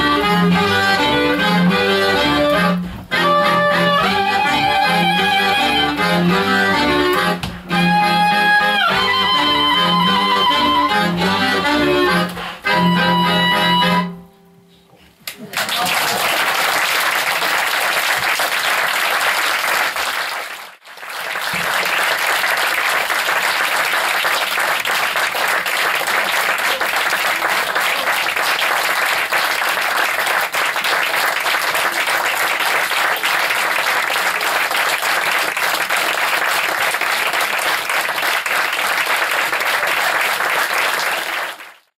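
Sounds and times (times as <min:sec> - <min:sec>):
audience applauding: 0:15.3 - 0:41.9.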